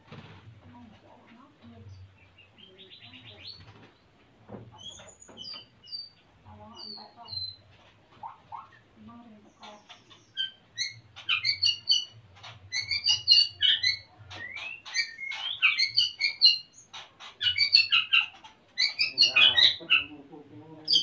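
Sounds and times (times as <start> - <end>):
songbird singing whistled notes: 4.8 - 6.2, 6.8 - 7.6, 9.6 - 20.1.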